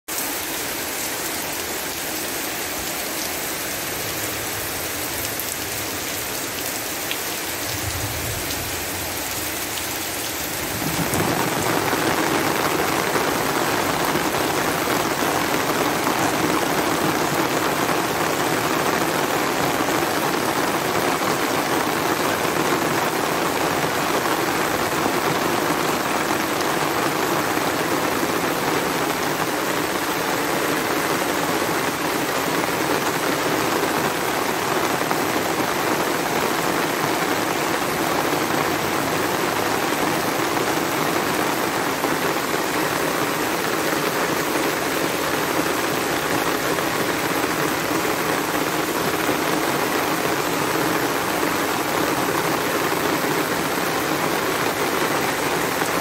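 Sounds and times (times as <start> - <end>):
heavy rain on flooded ground: 0.0 - 56.0.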